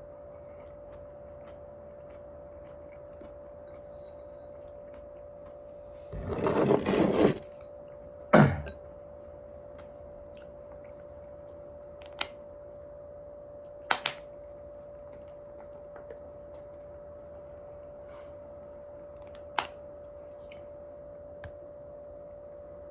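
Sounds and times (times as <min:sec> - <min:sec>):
faint hum: 0:00.0 - 0:22.9
chopsticks scraping in a bowl: 0:06.2 - 0:07.6.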